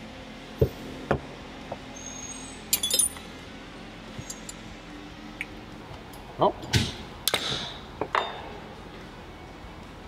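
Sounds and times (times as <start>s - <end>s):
metallic clinking: 2.7s - 3.3s.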